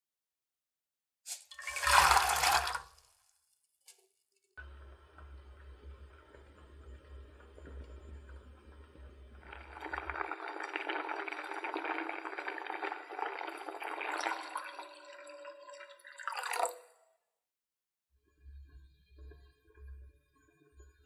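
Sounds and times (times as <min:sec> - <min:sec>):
beans boiling in a pot: 0:01.3 - 0:03.0, 0:09.4 - 0:14.9
water pouring into pot: 0:01.3 - 0:03.2, 0:09.4 - 0:16.8
low hum: 0:04.6 - 0:10.4.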